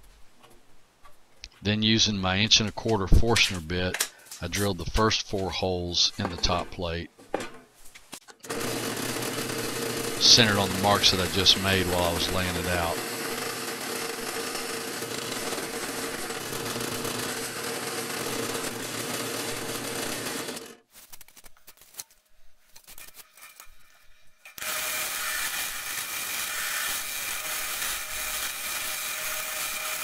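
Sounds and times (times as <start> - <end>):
drill press boring into plywood: 8.5 - 20.8, 24.5 - 30.0.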